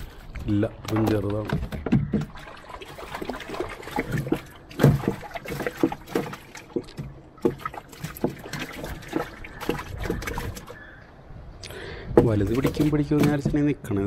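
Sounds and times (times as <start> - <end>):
water lapping: 0.0 - 11.0, 11.8 - 13.8
knocks on wooden canoe hull: 0.9 - 2.4, 12.1 - 13.7.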